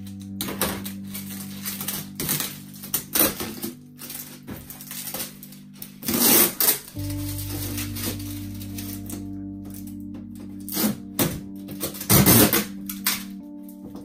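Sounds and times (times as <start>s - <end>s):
background music: 0.0s - 14.0s
tape peeling off plastic: 0.8s - 10.0s.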